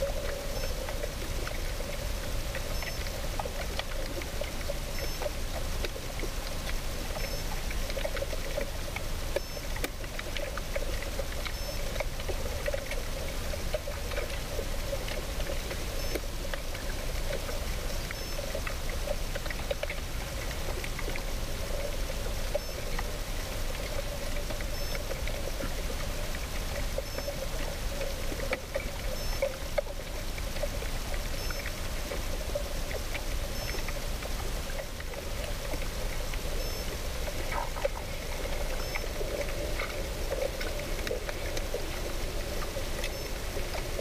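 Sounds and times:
moving water: 0.0s - 44.0s.

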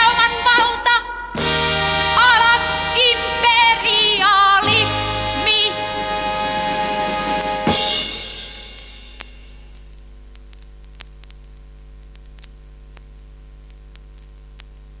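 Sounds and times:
music: 0.0s - 9.6s
vinyl surface hiss: 4.6s - 15.0s
mains hum: 7.8s - 15.0s
vinyl clicks: 9.2s - 14.8s.

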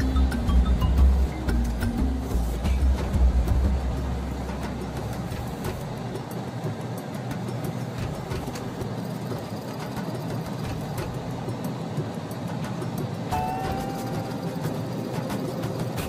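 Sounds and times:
heavy low rumble: 0.0s - 6.3s
car road and engine noise: 0.0s - 16.0s.

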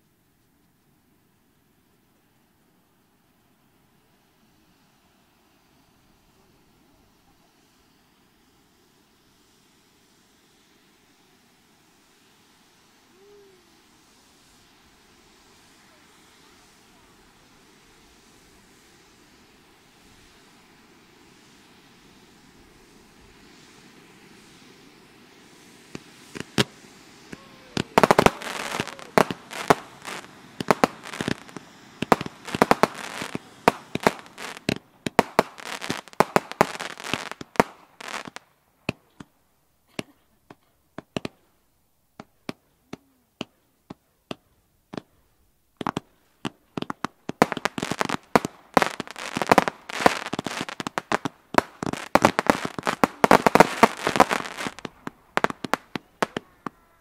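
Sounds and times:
fireworks fountain hissing: 0.0s - 57.0s
fireworks shots and crackling: 21.3s - 41.5s, 42.2s - 45.2s, 45.8s - 57.0s.

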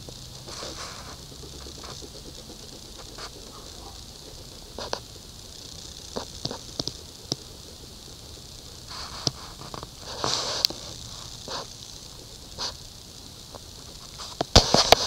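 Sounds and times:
pen scratching on paper: 0.2s - 5.2s.

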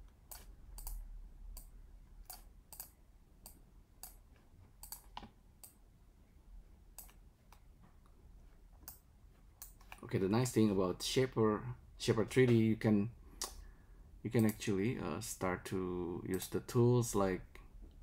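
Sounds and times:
faint computer mouse clicks: 0.3s - 4.2s, 4.8s - 5.8s, 7.0s - 7.7s, 8.8s - 9.0s.

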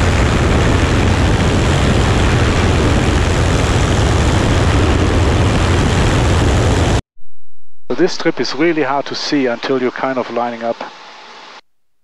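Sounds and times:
aircraft propeller engine droning: 0.0s - 7.0s.

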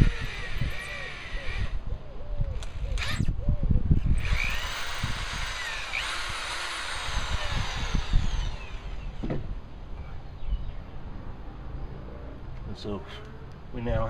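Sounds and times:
power drill boring through metal: 0.0s - 1.8s, 2.6s - 3.3s, 4.1s - 9.2s.

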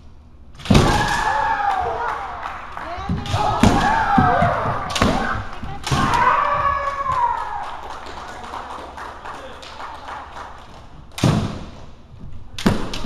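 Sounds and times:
bamboo swords clacking: 3.2s - 6.4s
bamboo sword strikes: 12.6s - 13.0s.

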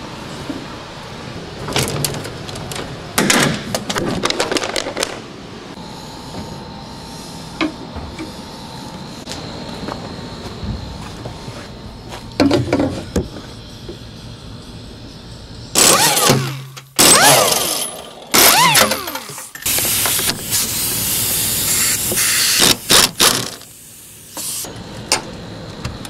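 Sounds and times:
pneumatic wrench whining: 15.8s - 23.7s
air hiss: 19.6s - 23.0s, 23.6s - 24.7s.

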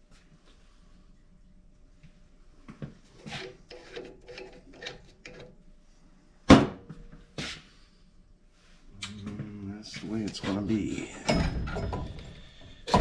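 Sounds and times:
pipe scraping and knocking: 3.2s - 5.4s, 9.9s - 13.0s
metal clunk with ring: 11.2s - 12.3s.

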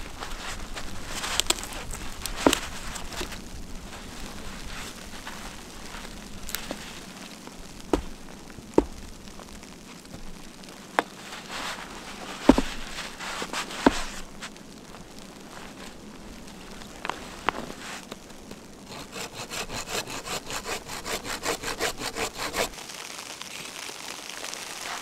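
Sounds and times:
steady hiss: 0.0s - 19.4s
woody knocks of chopping log: 7.9s - 9.1s, 12.5s - 12.9s, 13.8s - 14.2s.

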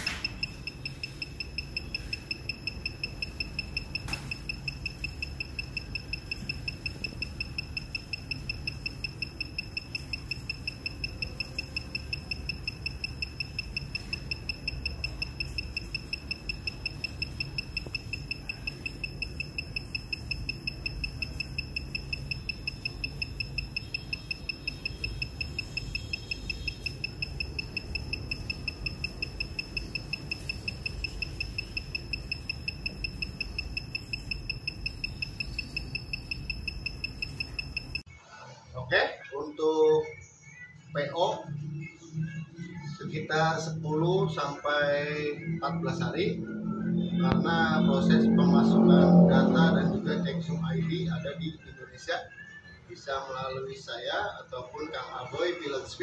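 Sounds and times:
high-pitched electronic beeping: 0.0s - 38.1s, 41.0s - 55.8s
low hum: 44.9s - 51.4s.

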